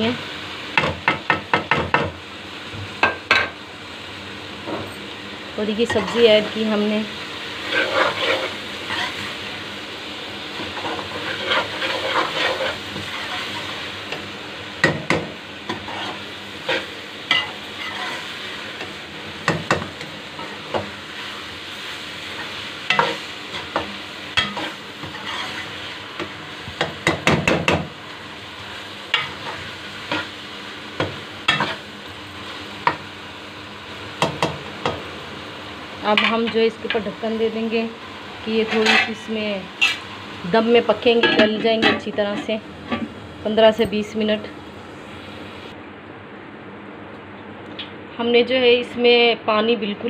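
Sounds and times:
vegetables sizzling in oil: 0.0s - 45.8s
metal spatula scraping pot: 7.6s - 9.2s, 10.8s - 13.7s, 15.7s - 18.3s, 24.4s - 25.8s, 38.6s - 39.2s, 39.8s - 40.0s.

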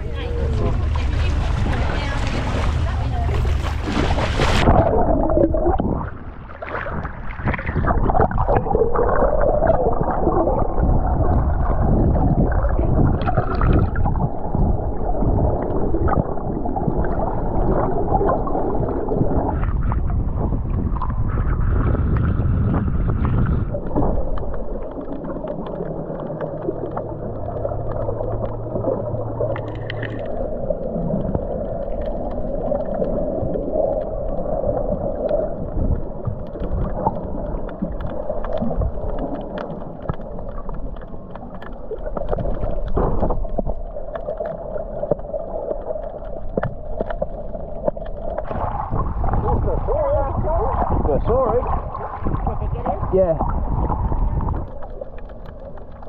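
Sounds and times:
low steady hum: 0.0s - 6.6s, 8.0s - 56.0s
underwater rushing and gurgling: 0.0s - 56.0s.

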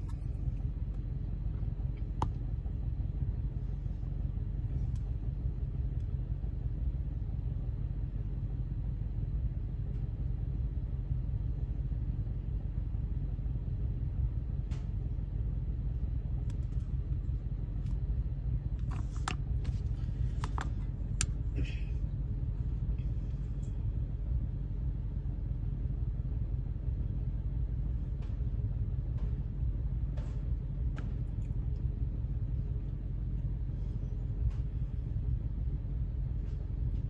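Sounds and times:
low rumble: 0.0s - 37.0s.

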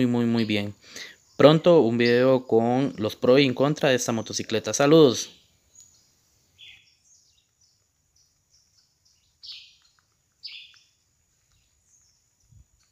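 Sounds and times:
faint bird chirps: 0.0s - 12.9s
loud short bird calls: 0.4s - 2.4s, 5.2s - 11.0s.

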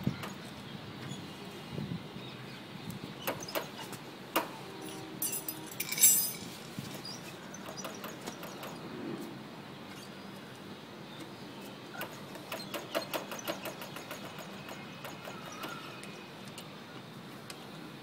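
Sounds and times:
metallic clink: 5.2s - 6.5s.

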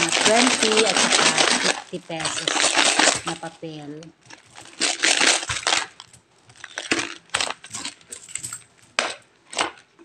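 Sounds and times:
coins clinking and clattering: 4.6s - 9.2s.

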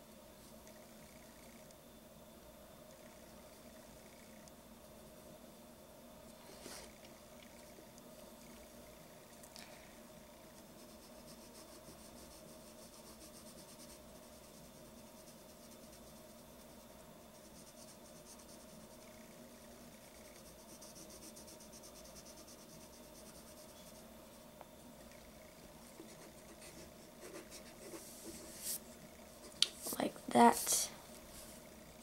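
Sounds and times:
pencil scratching on paper: 10.7s - 19.2s, 20.1s - 24.0s, 25.9s - 28.8s.

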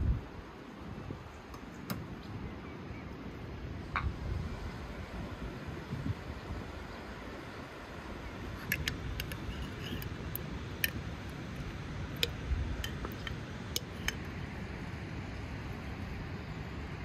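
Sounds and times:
glass clicks and ticks: 8.6s - 14.2s.

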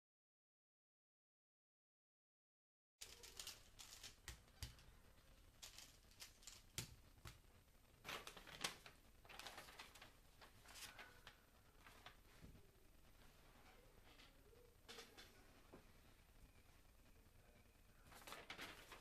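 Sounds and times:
puzzle cube clicking and rustling: 3.0s - 7.4s.

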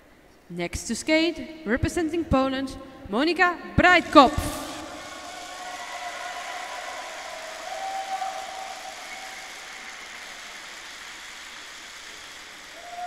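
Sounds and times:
ventilation hiss: 0.0s - 13.0s
crowd noise: 3.8s - 13.0s.

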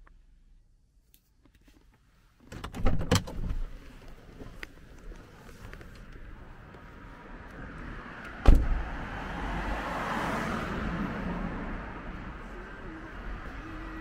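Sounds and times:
rushing street noise: 3.4s - 14.0s
car door slamming: 8.4s - 9.0s.

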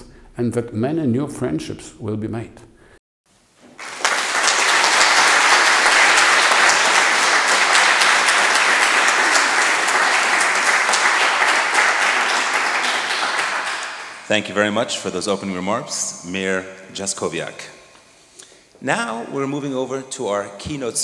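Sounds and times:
audience applauding: 3.7s - 14.3s.

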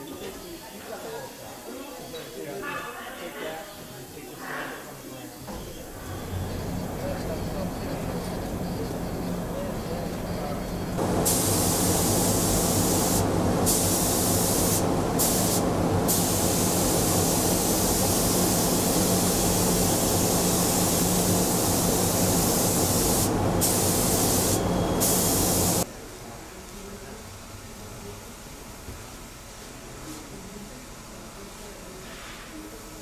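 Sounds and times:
hiss of rushing air: 11.0s - 25.8s.

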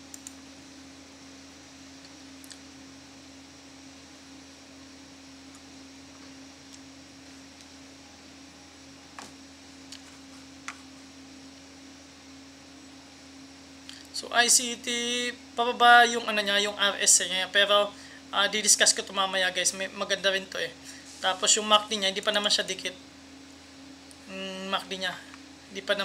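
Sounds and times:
steady hum: 0.0s - 26.0s
computer mouse clicks: 0.1s - 0.4s.

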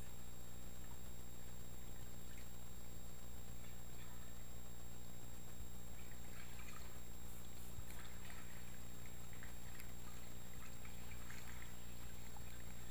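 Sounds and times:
steady low hum: 0.0s - 12.9s
water splashing and trickling: 5.9s - 12.9s.

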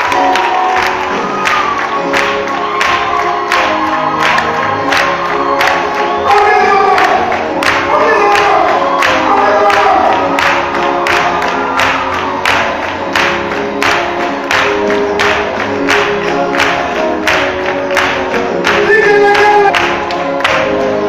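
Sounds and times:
gospel choir singing with beat: 2.6s - 21.0s.

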